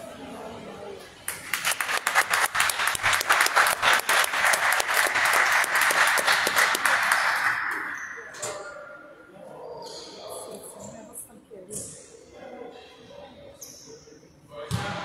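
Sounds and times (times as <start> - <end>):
crowd applause: 1.3 - 8.0.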